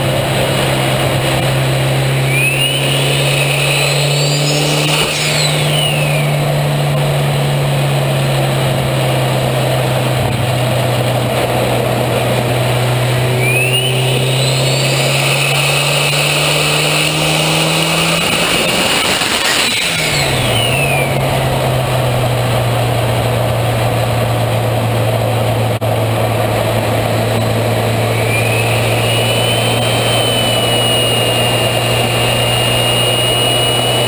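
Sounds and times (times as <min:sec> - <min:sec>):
turbocharged engine revving: 0:00.0 - 0:34.0
turbo whistle: 0:02.1 - 0:06.5, 0:13.3 - 0:21.3, 0:27.9 - 0:34.0.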